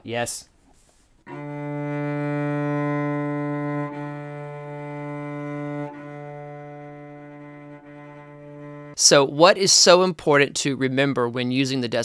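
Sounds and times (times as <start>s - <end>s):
cello bowed on one sustained note: 1.3s - 9.0s.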